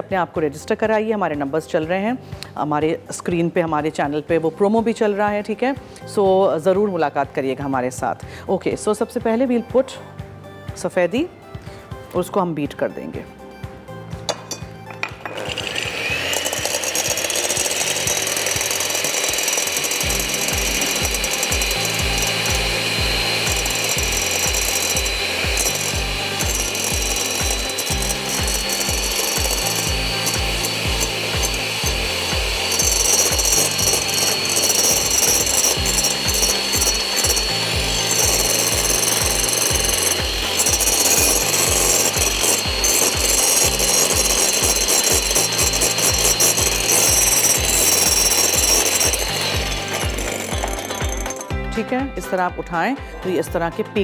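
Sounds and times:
electric hand mixer whining: 0:14.3 - 0:52.4.

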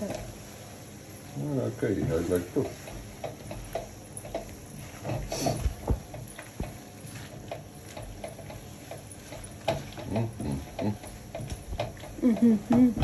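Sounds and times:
spatula scraping a frying pan: 0:00.0 - 0:13.0.

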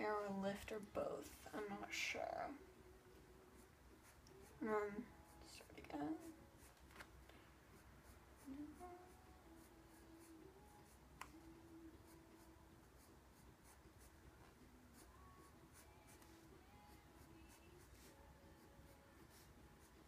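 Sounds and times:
pencil scratching on paper: 0:07.7 - 0:08.6, 0:12.0 - 0:16.4, 0:17.1 - 0:20.0.

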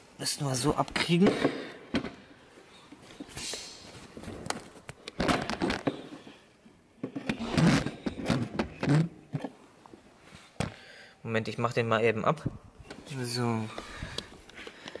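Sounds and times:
rubber and plastic clicking and rubbing: 0:04.1 - 0:06.2, 0:07.0 - 0:09.6.

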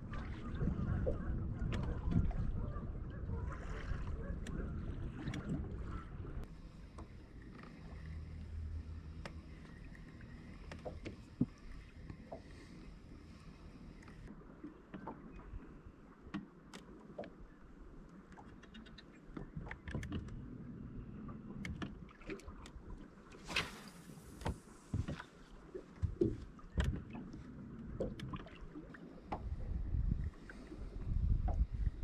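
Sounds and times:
low rumble of water and wind: 0:00.0 - 0:32.0
clicks and knocks from fishing gear: 0:18.3 - 0:20.4, 0:26.0 - 0:27.4.

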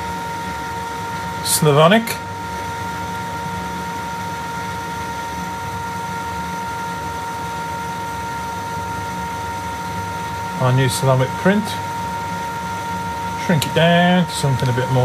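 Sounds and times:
machine hum with whine: 0:00.0 - 0:15.0.

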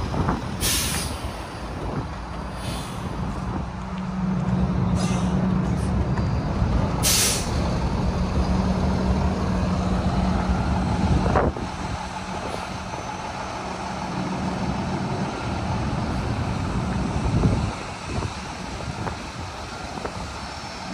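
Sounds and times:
diesel truck engine running: 0:00.0 - 0:20.9
air brake hiss: 0:00.6 - 0:01.4, 0:02.6 - 0:03.1, 0:05.0 - 0:05.4, 0:07.0 - 0:07.7.

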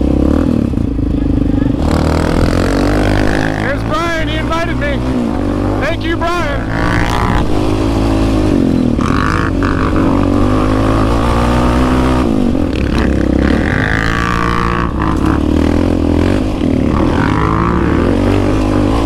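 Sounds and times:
atv engine revving: 0:00.0 - 0:19.0
other atv engines: 0:00.0 - 0:19.0.

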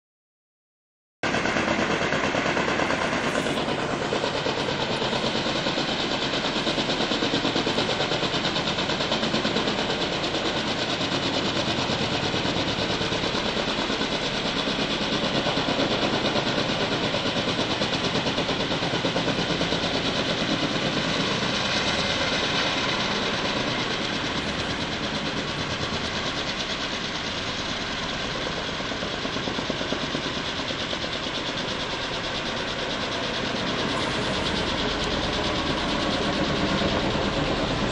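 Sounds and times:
helicopter rotor blades beating: 0:01.2 - 0:37.9
helicopter turbine noise: 0:01.2 - 0:37.9.

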